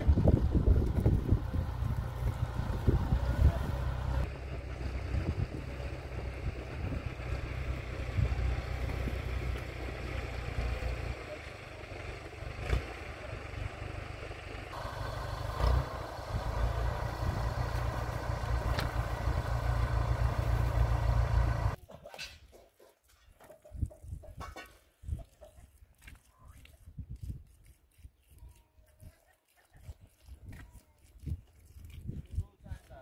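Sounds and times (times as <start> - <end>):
tractor engine rumbling: 0.0 - 24.6.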